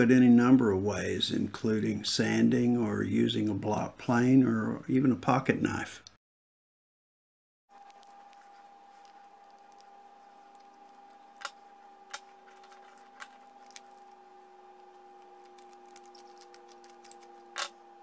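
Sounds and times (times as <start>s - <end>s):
faint steady hum: 7.7s - 18.0s.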